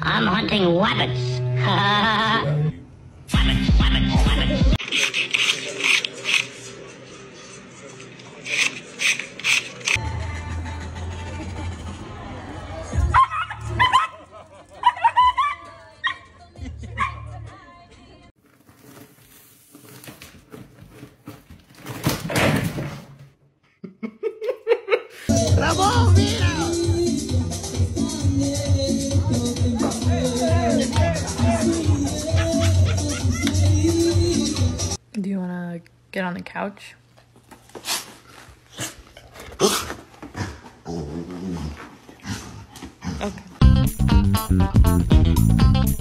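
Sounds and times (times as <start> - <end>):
cat rustling inside a bin: 18.4 - 22.2
dog grumbling and groaning: 38.7 - 43.6.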